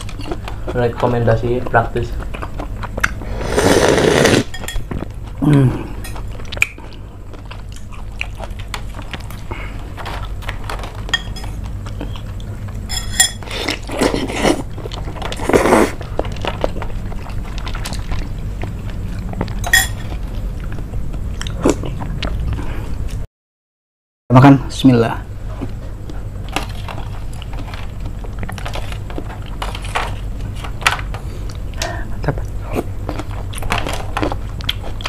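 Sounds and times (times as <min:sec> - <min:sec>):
chewing jelly: 0:00.0 - 0:03.3, 0:06.1 - 0:12.8, 0:13.4 - 0:22.7, 0:31.4 - 0:35.0
steady low hum: 0:00.0 - 0:23.3, 0:24.3 - 0:35.0
loud slurping: 0:03.2 - 0:04.5, 0:15.4 - 0:16.0
spoons clinking on ceramic bowl: 0:11.1 - 0:11.5, 0:12.9 - 0:13.4, 0:19.6 - 0:20.0.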